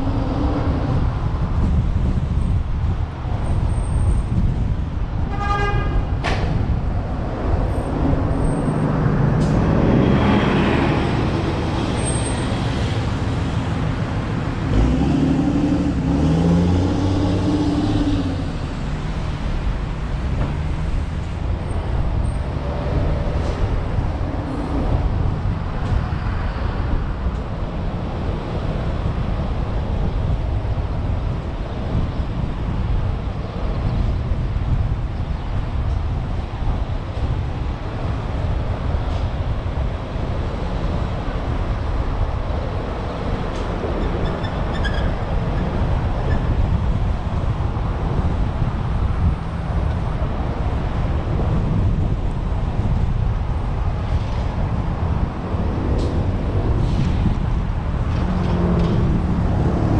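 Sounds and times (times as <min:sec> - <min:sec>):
street traffic: 0:00.0 - 0:59.9
car horn toot: 0:05.3 - 0:06.1
heavy engine rumbling past: 0:05.9 - 0:29.2, 0:38.0 - 0:59.9.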